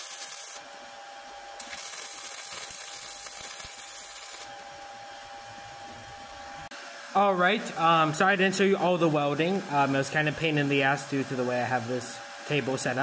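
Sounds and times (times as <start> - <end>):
arc welding crackling hiss: 0.0 - 0.8, 1.6 - 6.7.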